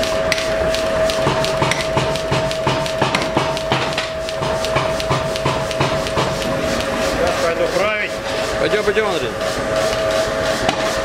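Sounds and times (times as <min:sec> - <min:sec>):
steady hum: 0:00.0 - 0:11.0
hammer striking steel on anvil: 0:01.2 - 0:06.9.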